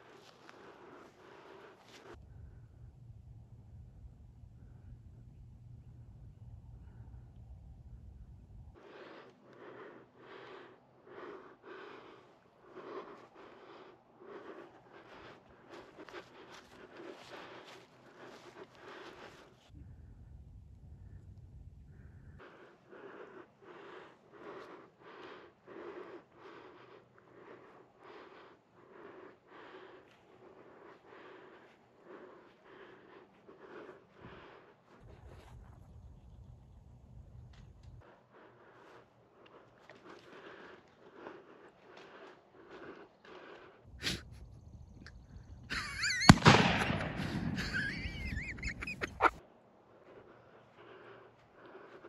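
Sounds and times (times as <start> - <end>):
person breathing heavily: 0.0 - 3.2, 3.8 - 52.0
shotgun blast: 46.3 - 47.6.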